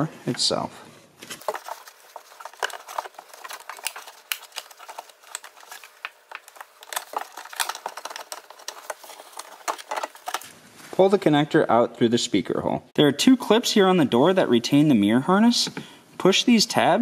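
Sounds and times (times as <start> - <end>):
plastic connector clicking and rustling: 1.4 - 10.5.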